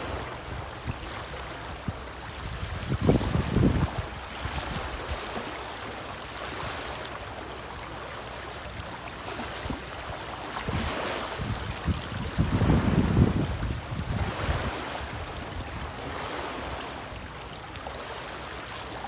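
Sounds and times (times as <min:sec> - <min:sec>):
wind buffeting microphone: 0:00.0 - 0:05.4, 0:09.5 - 0:17.3
lake water lapping against rocks: 0:00.0 - 0:19.0.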